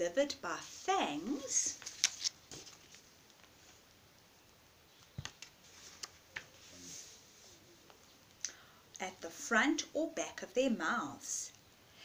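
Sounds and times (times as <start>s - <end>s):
paper rustle: 0.6s - 3.8s, 5.1s - 7.2s
soft clicks of book handling: 1.7s - 4.3s, 5.0s - 6.6s.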